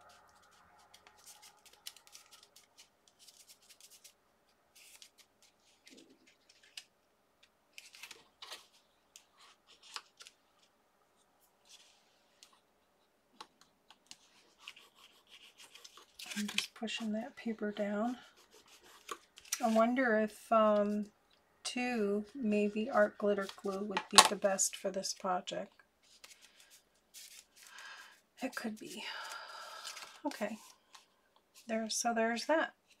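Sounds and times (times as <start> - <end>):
paper rustling and scratching: 0.0 - 6.9, 7.7 - 12.6, 14.0 - 20.0, 26.0 - 31.7
bone folder rubbing paper: 14.2 - 16.6, 18.1 - 19.8.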